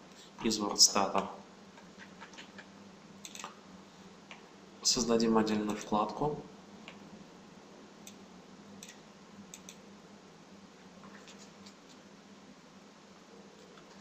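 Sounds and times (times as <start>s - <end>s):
low background hum: 0.0s - 14.0s
computer mouse clicks: 1.8s - 3.6s, 8.8s - 9.8s.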